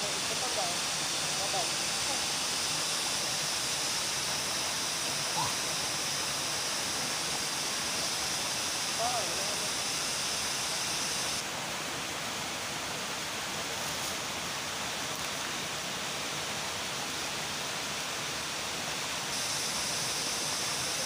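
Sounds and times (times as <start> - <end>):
high hiss: 0.0 - 21.0.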